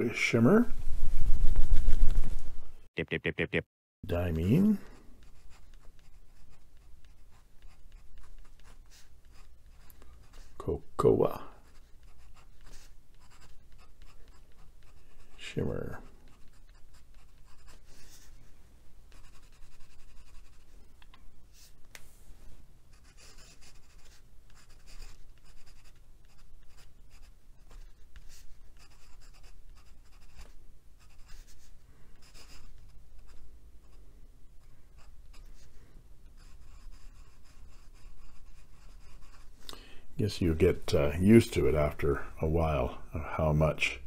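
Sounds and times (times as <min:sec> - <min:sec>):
pen nib scratching paper: 0:05.2 - 0:10.6, 0:11.6 - 0:15.4, 0:16.2 - 0:18.4, 0:19.1 - 0:20.7, 0:22.9 - 0:33.4, 0:36.4 - 0:39.6.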